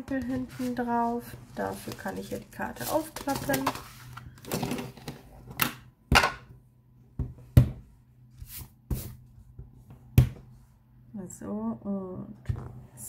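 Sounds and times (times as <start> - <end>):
card rustling: 0.5 - 4.4.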